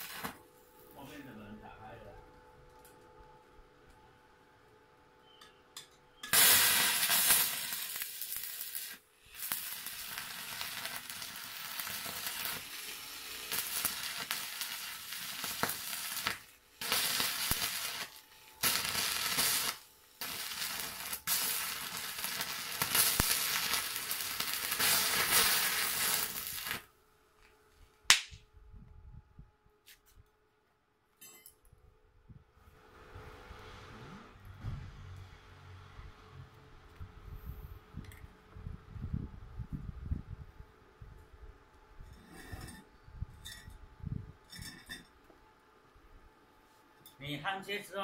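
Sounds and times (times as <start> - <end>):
welding arc crackling: 0.0 - 1.1, 6.2 - 26.9.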